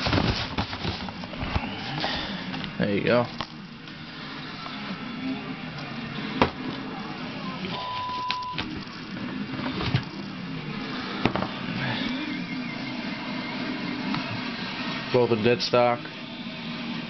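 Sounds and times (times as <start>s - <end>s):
cardboard box and tissue paper handled: 0.0s - 1.4s.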